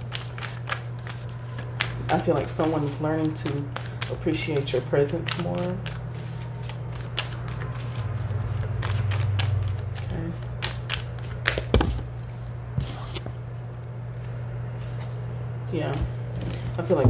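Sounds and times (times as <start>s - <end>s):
cards being shuffled: 0.0s - 12.1s.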